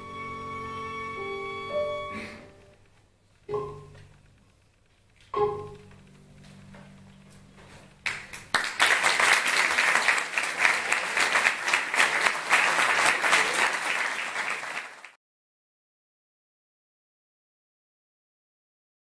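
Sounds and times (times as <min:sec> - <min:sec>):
audience applauding: 0:08.0 - 0:15.2.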